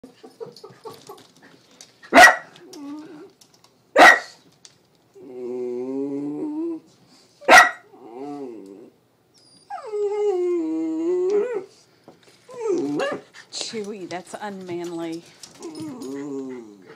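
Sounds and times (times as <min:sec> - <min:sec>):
small dogs barking: 0:02.1 - 0:02.6, 0:04.0 - 0:04.4, 0:07.4 - 0:07.9
dogs growling: 0:15.5 - 0:16.9.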